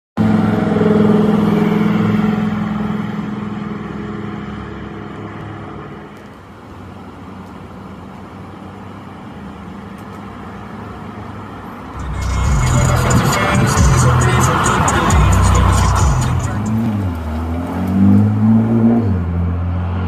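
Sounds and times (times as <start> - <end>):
road traffic noise: 0.2 - 20.0
sports car engine pulling away: 12.0 - 20.0.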